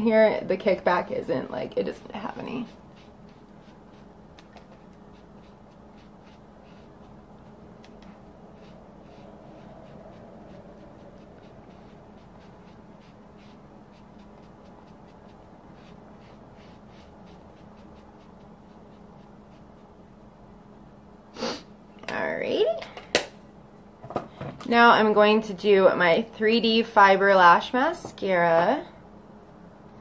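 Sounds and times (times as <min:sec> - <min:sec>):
steady low hum: 0:00.0 - 0:30.0
makeup pad dabbing skin: 0:01.7 - 0:19.6.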